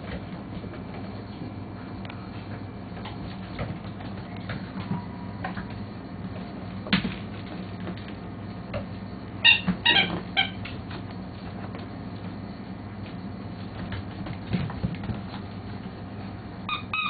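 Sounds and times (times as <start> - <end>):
steady low hum: 0.0 - 17.0
puppies yelping: 16.7 - 17.0.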